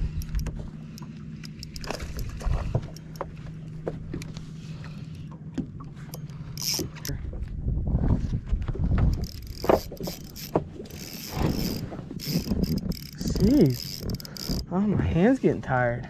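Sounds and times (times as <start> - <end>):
low steady hum: 0.0 - 16.0
reel clicks and knocks: 0.1 - 7.2, 9.0 - 14.7.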